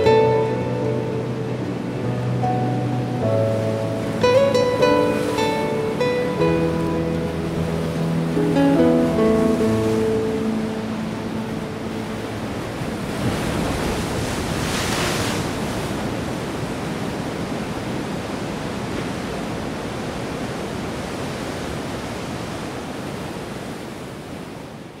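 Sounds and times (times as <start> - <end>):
surf washing on shore: 0.0 - 25.0.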